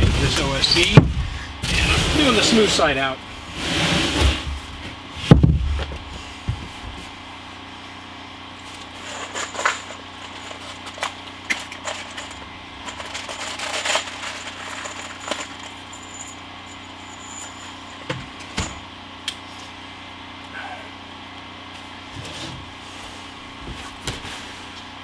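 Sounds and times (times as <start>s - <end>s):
steady low hum: 0.0s - 25.0s
hand tools clicking and clinking: 9.0s - 18.1s.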